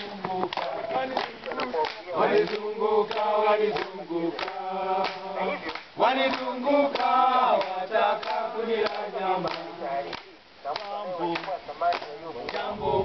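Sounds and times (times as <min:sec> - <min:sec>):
hands clapping: 0:00.0 - 0:12.7
group singing in chorus: 0:00.0 - 0:13.0.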